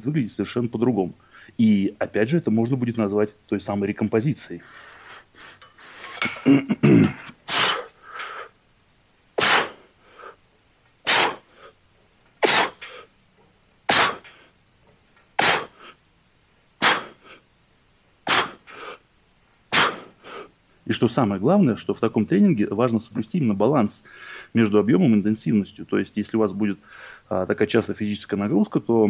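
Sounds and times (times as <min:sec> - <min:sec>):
man exhaling forcefully: 0:09.4 - 0:10.4, 0:11.0 - 0:11.7, 0:12.4 - 0:13.1, 0:15.4 - 0:16.0, 0:16.8 - 0:17.4, 0:18.3 - 0:19.0, 0:19.7 - 0:20.2.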